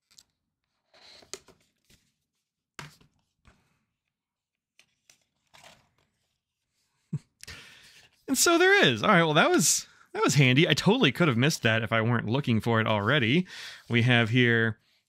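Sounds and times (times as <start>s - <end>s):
paper and card rustling: 0.0s - 3.9s, 4.5s - 7.0s.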